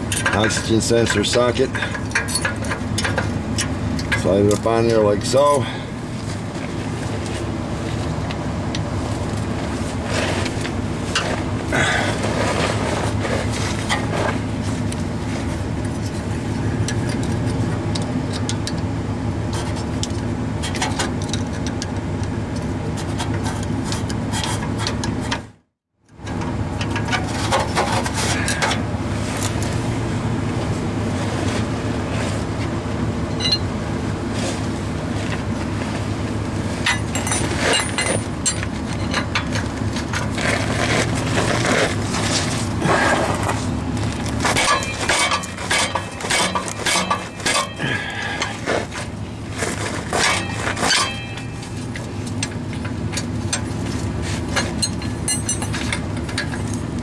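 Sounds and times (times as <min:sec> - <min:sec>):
metal clinks and scrapes: 0:00.0 - 0:07.4, 0:09.2 - 0:18.9, 0:33.3 - 0:33.7, 0:36.8 - 0:57.0
low mechanical hum: 0:00.0 - 0:57.0.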